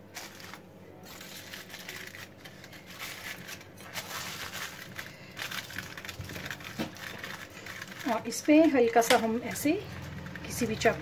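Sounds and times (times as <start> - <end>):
aluminium foil crinkling: 0.0 - 11.0.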